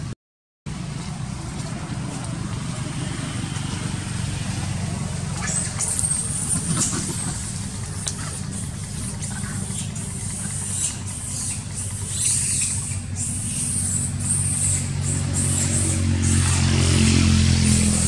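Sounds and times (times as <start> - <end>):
vehicle engine rumbling: 0.7 - 18.0.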